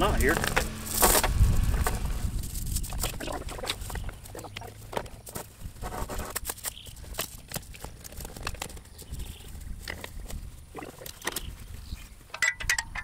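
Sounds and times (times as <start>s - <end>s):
steel chain clinking: 12.3s - 13.0s.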